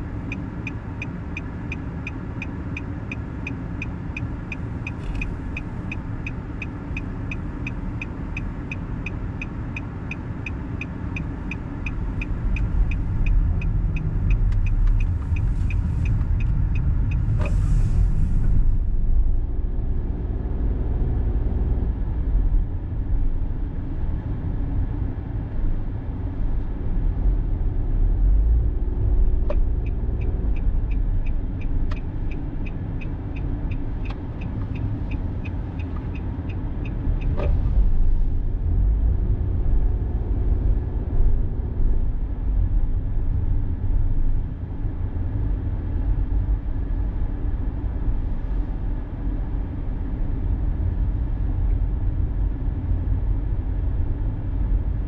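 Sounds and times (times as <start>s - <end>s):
turn signal ticking: 0.0s - 17.6s, 28.9s - 41.8s
car road and engine rumble: 0.0s - 55.0s.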